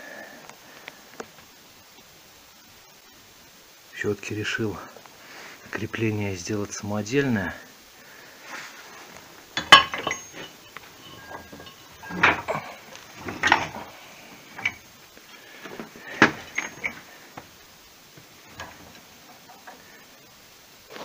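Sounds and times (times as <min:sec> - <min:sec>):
metal parts clinking: 0:09.6 - 0:14.9, 0:15.6 - 0:17.2.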